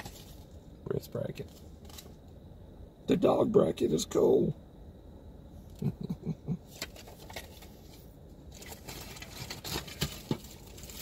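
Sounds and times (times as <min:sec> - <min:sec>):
packaging rustling and crinkling: 0:00.0 - 0:00.5, 0:06.8 - 0:11.0.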